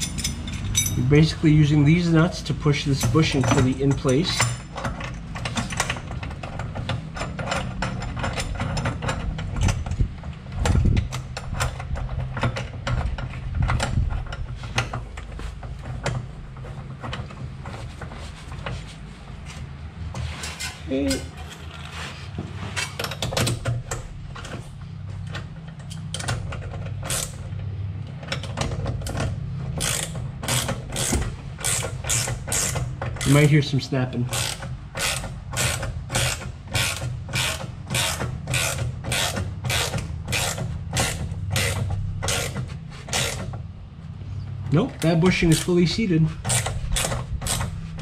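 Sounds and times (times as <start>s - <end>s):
hand ratchet wrench clicking: 29.8s - 33.4s, 34.3s - 43.5s, 46.4s - 47.8s.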